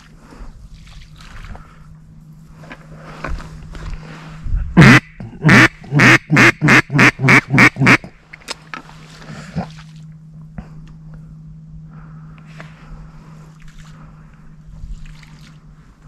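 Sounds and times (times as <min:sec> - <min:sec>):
duck call quacks: 0:04.8 - 0:08.1.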